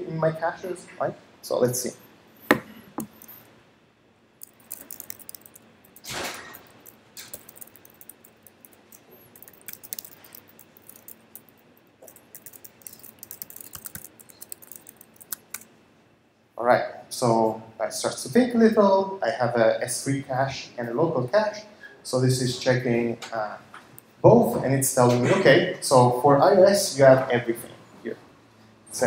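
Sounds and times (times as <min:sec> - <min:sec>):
computer keyboard typing: 0:02.5 - 0:03.4, 0:04.4 - 0:15.7.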